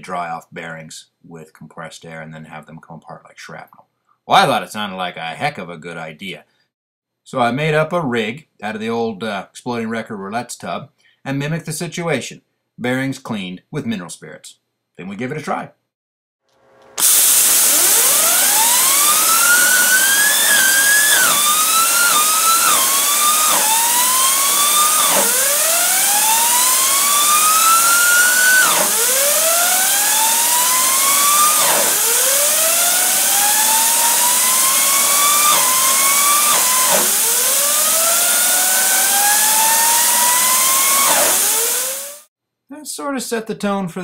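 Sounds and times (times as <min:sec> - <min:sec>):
spinning bearing whine: 0:16.6 - 0:42.3
compressed air hissing: 0:17.0 - 0:42.3.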